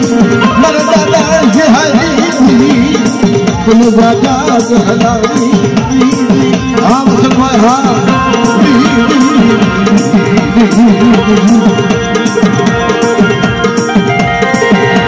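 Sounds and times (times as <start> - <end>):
hand drum rhythm: 0.0 - 15.0.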